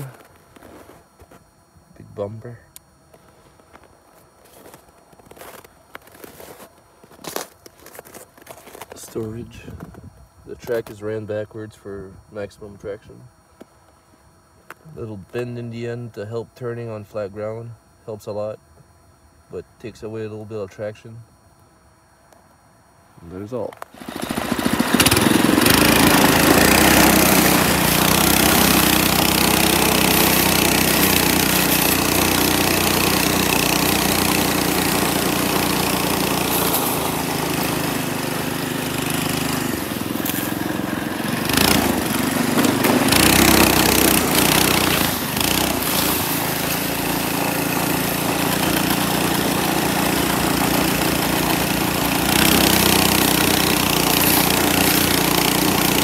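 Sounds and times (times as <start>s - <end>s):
single-cylinder engine running hard: 24.0s - 56.0s.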